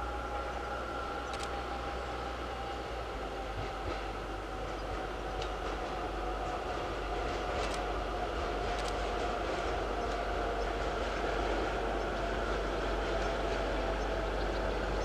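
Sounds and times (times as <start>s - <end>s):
diesel locomotive engine whine: 0.0s - 15.0s.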